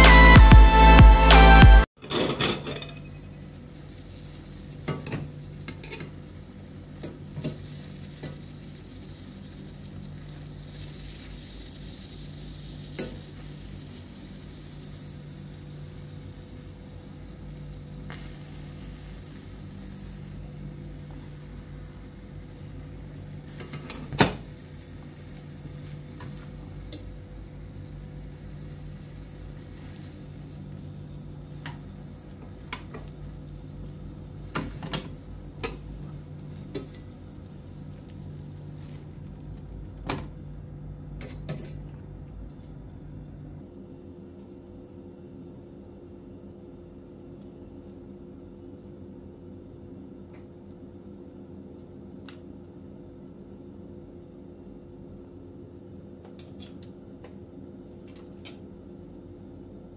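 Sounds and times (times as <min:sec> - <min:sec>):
gas burner hissing: 0:02.4 - 0:43.7
eggplant skins sizzling: 0:03.0 - 0:43.3.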